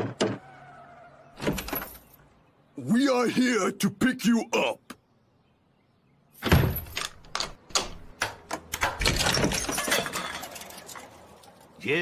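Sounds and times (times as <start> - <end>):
bangs and clattering: 8.8 - 11.5.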